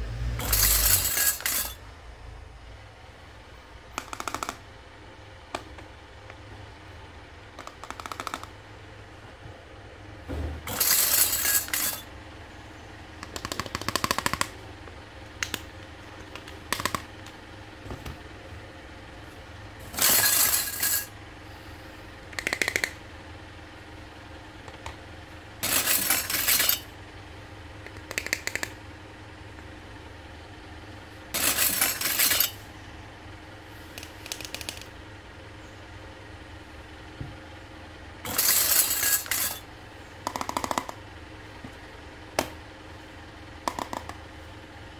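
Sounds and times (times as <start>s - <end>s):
plastic toys clattering: 19.9s - 21.1s, 25.6s - 26.9s, 31.4s - 32.6s, 38.3s - 39.6s.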